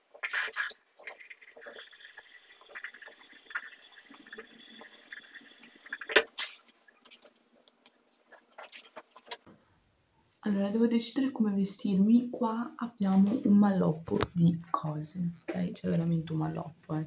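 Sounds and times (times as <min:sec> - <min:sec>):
sink tap running: 0:01.0 - 0:06.4.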